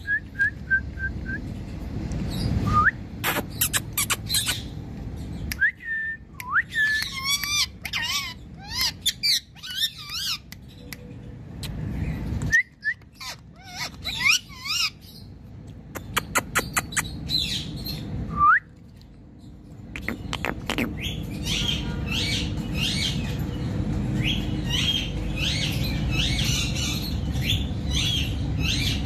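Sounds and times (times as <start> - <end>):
parakeet calling: 3.2 - 5.4, 6.7 - 15.3, 20.0 - 29.0.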